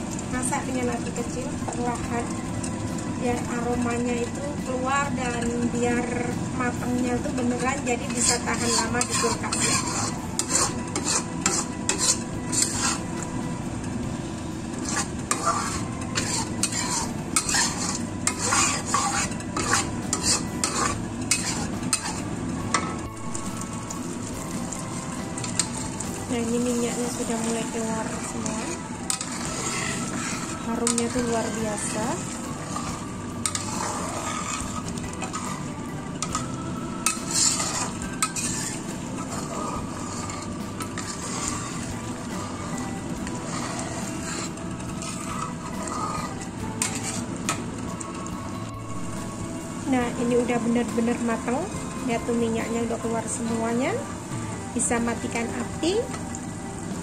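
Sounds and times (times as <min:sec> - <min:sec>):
oil sizzling: 0:00.0 - 0:57.0
spatula scraping paste in a wok: 0:07.3 - 0:13.3, 0:14.7 - 0:22.9, 0:24.5 - 0:47.8.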